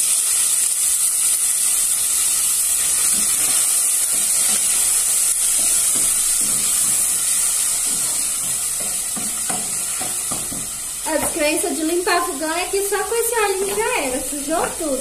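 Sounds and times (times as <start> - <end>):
meat sizzling in oil: 0.0 - 15.0.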